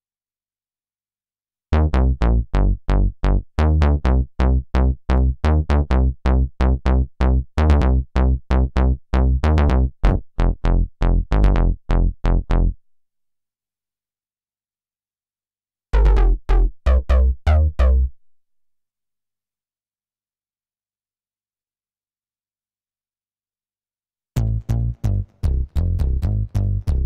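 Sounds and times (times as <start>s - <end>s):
synthesizer bass notes: 1.8s - 12.8s, 16.0s - 18.2s, 24.4s - 27.0s.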